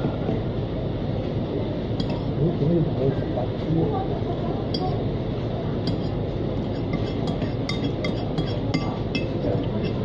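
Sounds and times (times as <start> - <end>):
cutlery clinking against plate: 2.0 - 2.3, 5.8 - 10.0.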